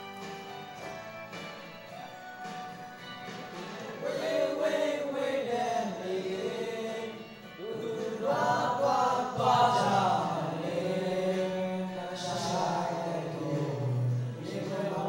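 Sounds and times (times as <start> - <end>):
men singing in chorus: 4.0 - 15.0.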